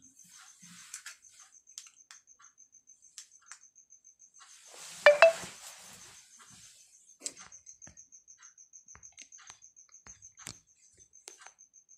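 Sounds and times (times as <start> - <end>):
cricket chirping: 1.2 - 4.6, 6.2 - 11.9.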